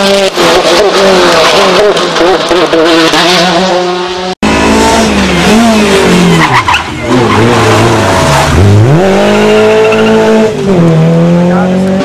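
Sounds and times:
car engine revving: 0.0s - 12.0s
tyre squeal: 6.0s - 8.6s, 9.2s - 10.4s.

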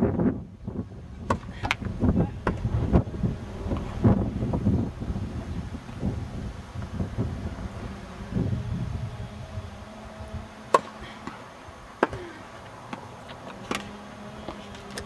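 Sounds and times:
wind rumble on microphone: 0.0s - 11.9s
tennis ball struck by rackets: 10.7s - 15.0s.

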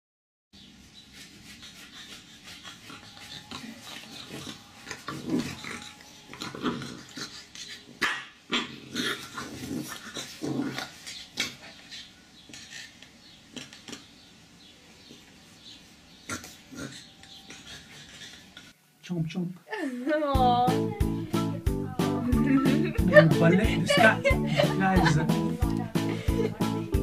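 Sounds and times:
puppy growls and yips: 2.1s - 13.0s.

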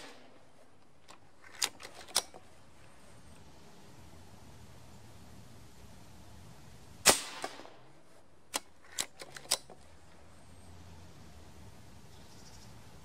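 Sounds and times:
air rifle shot: 0.0s - 0.4s, 7.0s - 7.9s
rifle action clicks: 0.0s - 2.6s, 8.5s - 9.9s.

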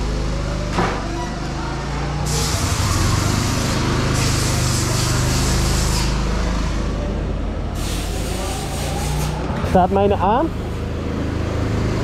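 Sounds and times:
go-kart engines idling: 0.0s - 12.0s
bursts of hissing: 2.3s - 6.3s.

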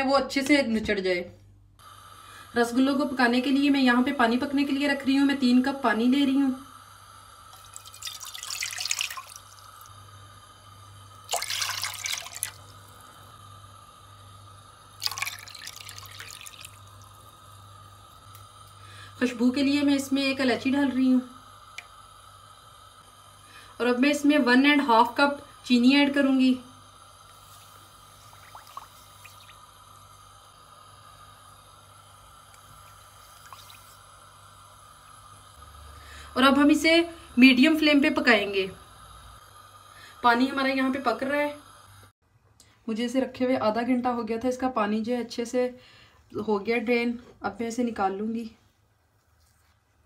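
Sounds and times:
background hiss: 1.5s - 42.9s
water pouring into pan: 7.4s - 9.9s, 11.2s - 13.1s, 15.0s - 17.4s, 27.4s - 30.0s, 32.8s - 34.2s.

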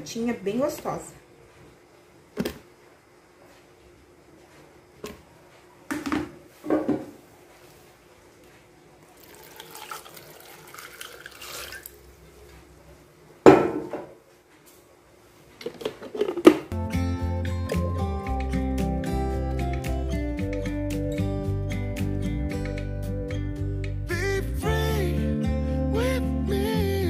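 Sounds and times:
running water: 9.2s - 12.1s.

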